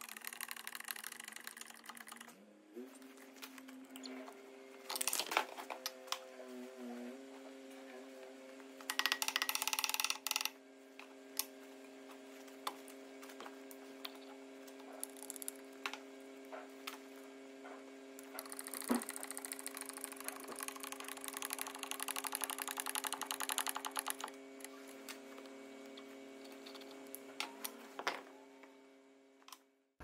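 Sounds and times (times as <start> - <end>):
steady hum: 10.9 - 29.4.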